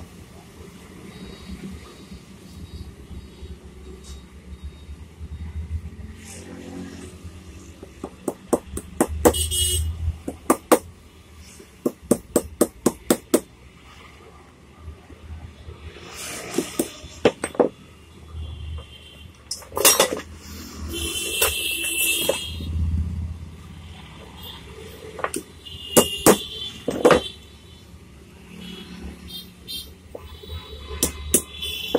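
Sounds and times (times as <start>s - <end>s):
sharp metallic taps: 7.8s - 9.5s, 10.2s - 10.9s, 11.8s - 13.5s, 25.2s - 27.4s, 31.0s - 31.9s
metal parts clattering: 19.5s - 20.4s.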